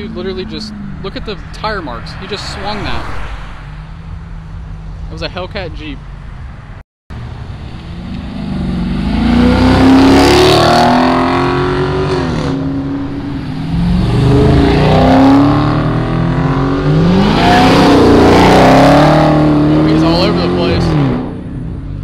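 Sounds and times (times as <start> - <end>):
cars accelerating hard: 7.9 - 21.9.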